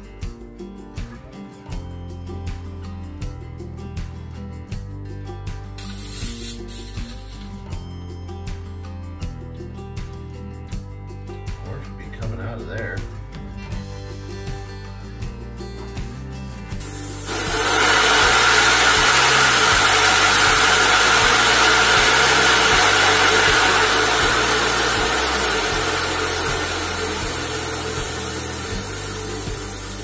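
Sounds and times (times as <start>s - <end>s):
compressed air hissing from valve: 5.8s - 7.7s, 16.8s - 30.0s.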